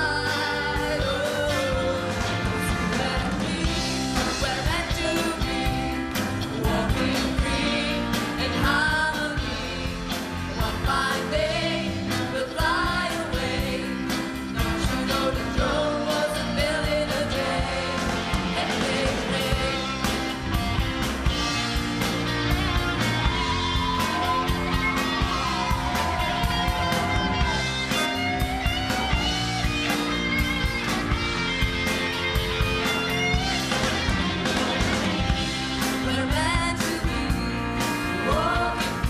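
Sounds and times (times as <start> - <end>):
woman singing: 0.0 - 20.0, 35.9 - 39.0
drums and cymbals: 0.0 - 39.0
electric guitar: 0.0 - 39.0.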